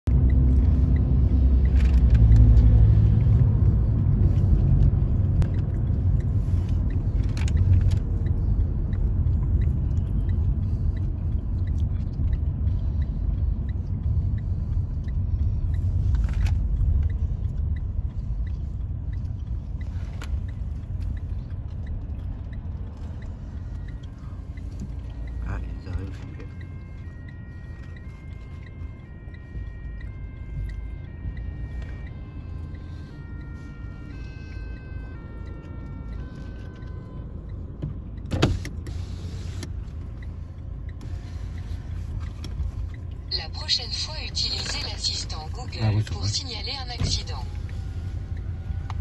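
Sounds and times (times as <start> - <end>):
road and engine rumble in car: 0.0 - 49.0
faint regular ticking: 0.1 - 33.6.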